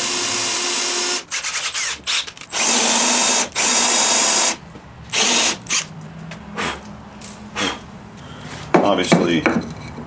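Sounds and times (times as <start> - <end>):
cordless drill boring into wood: 0.0 - 5.9.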